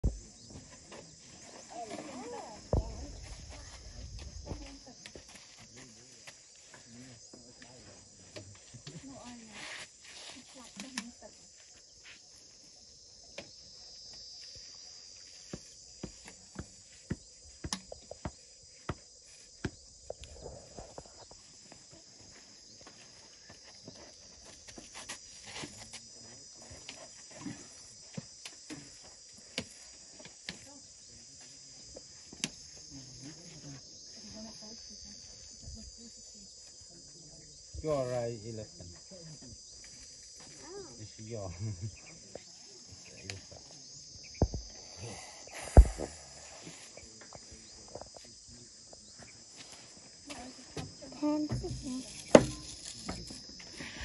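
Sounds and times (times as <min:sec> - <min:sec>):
high insect chirring: 0:08.6 - 0:54.0
heavy low thump: 0:45.6 - 0:46.2.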